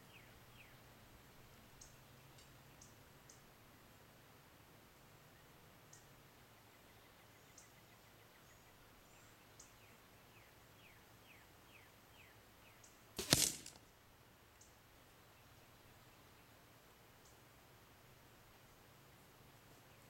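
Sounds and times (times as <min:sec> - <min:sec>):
arrow hitting target: 0:13.2 - 0:13.8.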